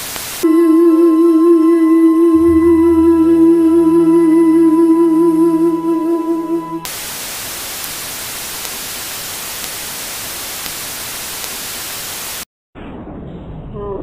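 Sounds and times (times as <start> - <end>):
static hiss: 0.0 - 0.5, 6.9 - 12.5
held musical note with vibrato: 0.5 - 6.9.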